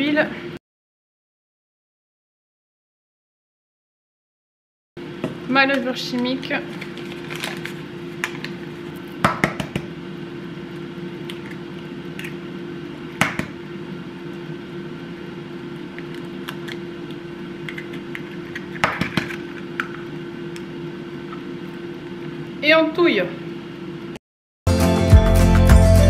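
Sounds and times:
eggs cracking on ceramic bowl: 0:16.0 - 0:20.0.

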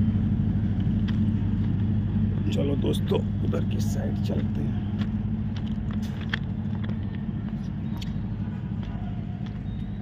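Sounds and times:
engine humming: 0:00.0 - 0:10.0.

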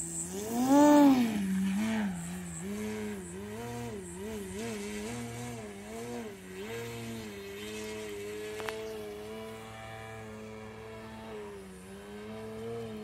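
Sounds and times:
electric model plane motor: 0:00.0 - 0:13.0.

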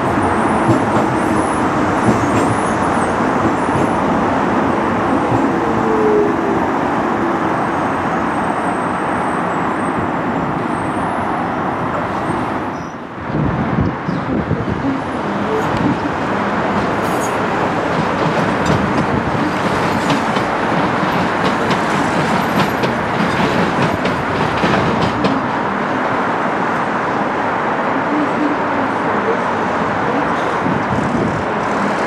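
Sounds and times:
train wheels rolling: 0:00.0 - 0:06.6, 0:13.8 - 0:25.9.

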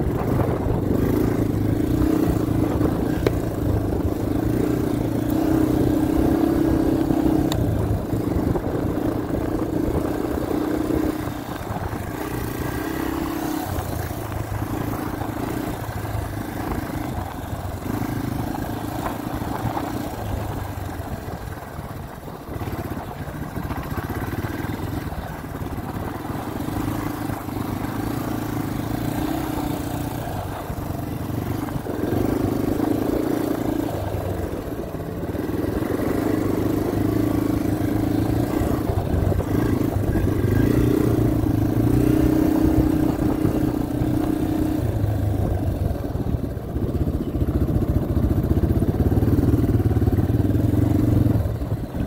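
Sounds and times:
dirt bike engine revving: 0:00.0 - 0:20.4, 0:35.4 - 0:45.0.

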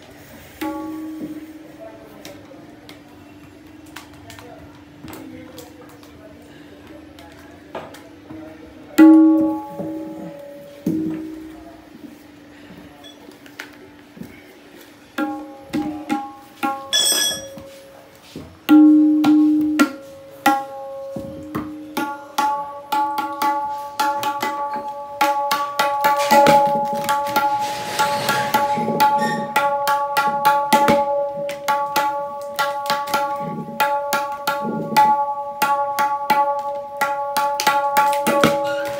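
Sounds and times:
tabla strokes: 0:00.0 - 0:01.8, 0:09.0 - 0:11.6, 0:15.0 - 0:17.8, 0:18.6 - 0:38.9.

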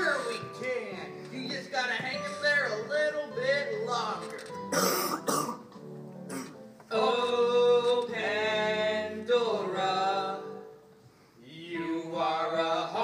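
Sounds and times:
two men singing together: 0:06.9 - 0:10.7, 0:11.4 - 0:13.0.

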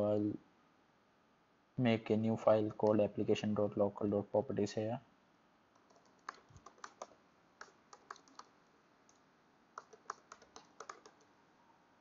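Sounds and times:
keyboard keystrokes: 0:05.8 - 0:08.5, 0:09.8 - 0:11.3.

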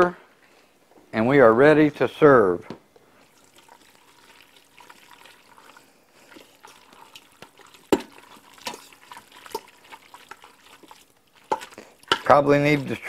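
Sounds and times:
wet squelching of stirred food: 0:03.0 - 0:13.0
utensil tapping a pot: 0:07.4 - 0:13.0.

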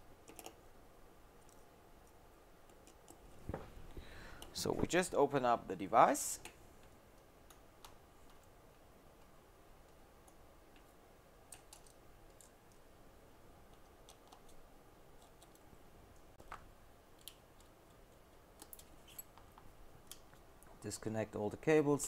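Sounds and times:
faint clicks of small tools: 0:11.5 - 0:12.8.

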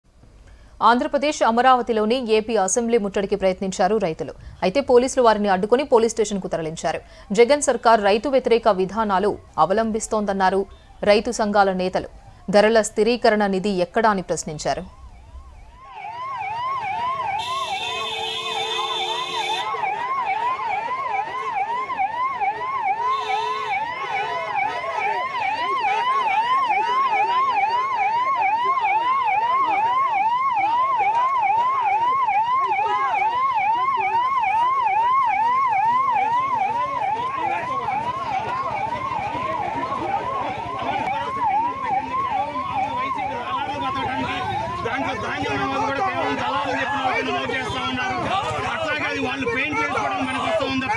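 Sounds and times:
police siren wailing: 0:05.0 - 0:50.9
horn steady tone: 0:15.0 - 0:50.9.

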